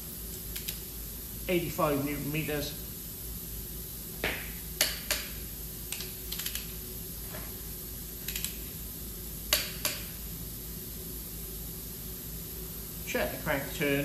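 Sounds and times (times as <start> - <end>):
torque wrench clicks: 5.9 - 6.7, 8.2 - 8.6.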